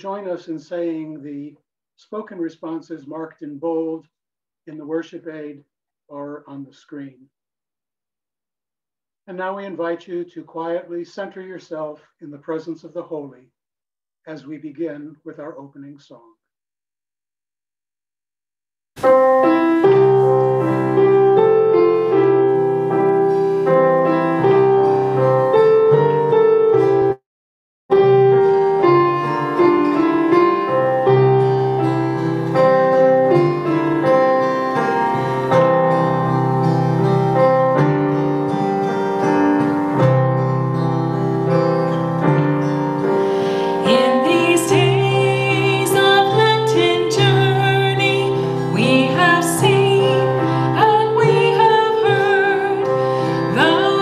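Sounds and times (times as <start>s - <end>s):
piano playing: 19.0s - 27.2s, 27.9s - 54.0s.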